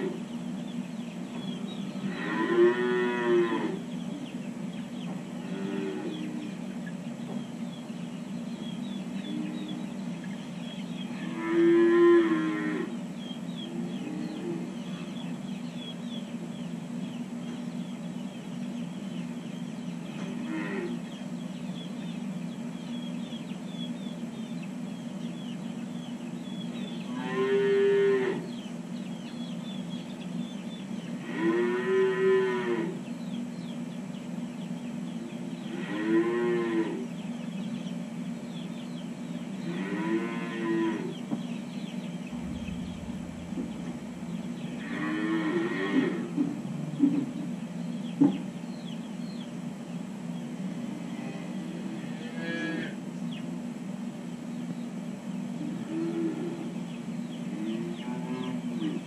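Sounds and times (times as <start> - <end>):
steady low hum: 0.0 - 35.8, 36.4 - 59.0
calves mooing: 2.0 - 3.9, 5.4 - 6.5, 11.1 - 13.0, 20.2 - 21.0, 27.0 - 28.5, 31.2 - 33.0, 35.7 - 37.1, 39.6 - 41.2, 44.6 - 46.4, 50.9 - 53.0, 57.5 - 59.0.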